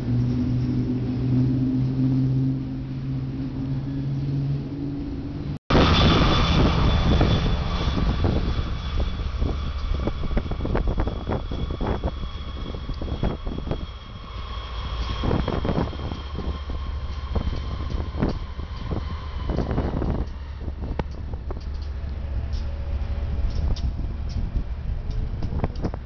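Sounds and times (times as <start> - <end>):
diesel locomotive engine: 0.0 - 26.0
freight train rolling by: 0.0 - 26.0
steady high whine: 0.0 - 26.0
wheels clicking over rail joints: 15.0 - 26.0.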